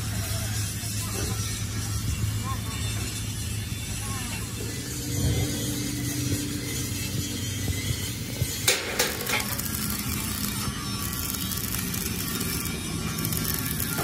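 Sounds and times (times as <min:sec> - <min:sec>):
low hum: 0:00.0 - 0:14.0
workshop noise: 0:00.0 - 0:14.0
sharp metal knocks: 0:08.6 - 0:09.5.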